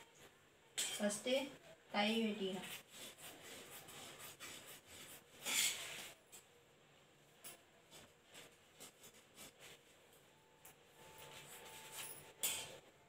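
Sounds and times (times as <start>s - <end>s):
fabric rustling: 7.3s - 12.9s.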